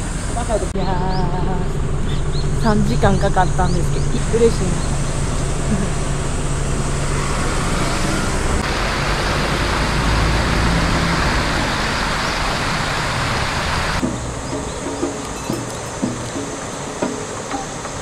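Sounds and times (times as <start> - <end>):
low steady hum: 0.0 - 8.8.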